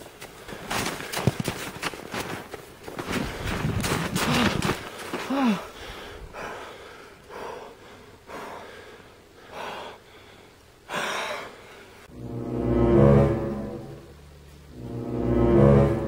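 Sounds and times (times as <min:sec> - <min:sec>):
person gasping for breath: 0:04.2 - 0:11.9.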